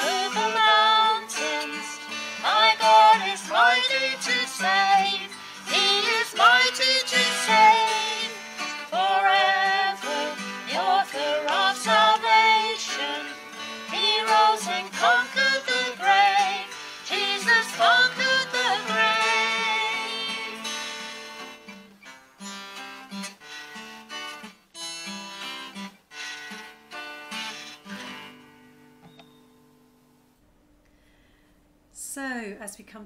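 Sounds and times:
woman singing: 0.0 - 20.8
strummed acoustic guitar: 0.0 - 29.9.

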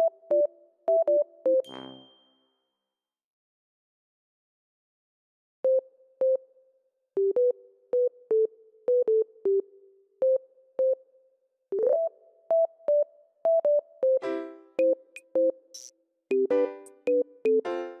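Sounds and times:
synthesizer melody: 11.8 - 18.0.

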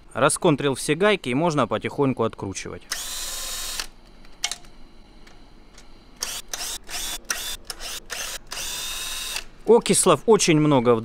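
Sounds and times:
cordless drill motor whining: 2.9 - 3.9, 6.2 - 9.5.

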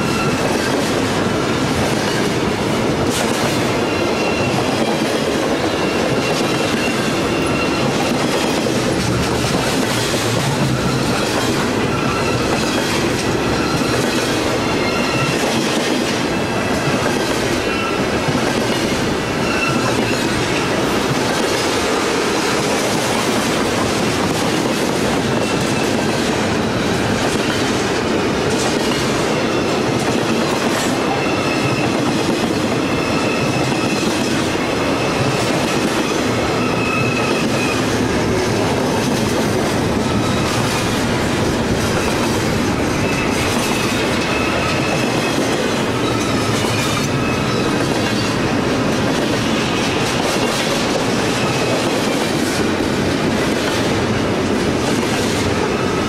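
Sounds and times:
high wheel squeals: 0.0 - 0.8, 3.7 - 4.9, 5.6 - 8.9, 10.4 - 15.6, 16.3 - 20.8, 29.2 - 38.0, 39.9 - 41.0, 42.0 - 48.4
freight train rolling past: 0.0 - 56.0.

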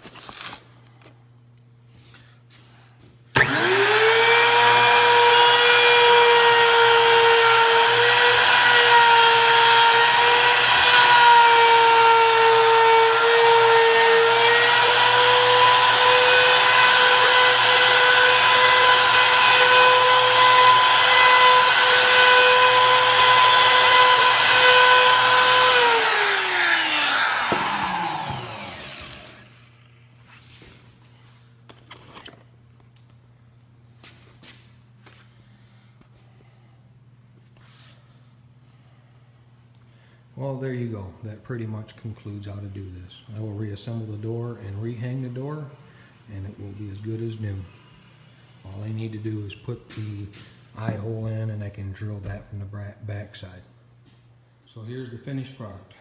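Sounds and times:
router trimming laminate: 3.4 - 29.5
router bit spinning down: 3.4 - 29.6.

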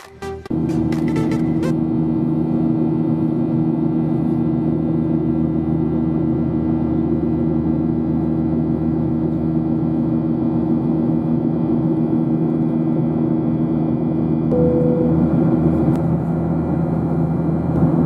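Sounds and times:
airplane engine drone: 0.0 - 18.0
low hum tones: 13.9 - 18.0.

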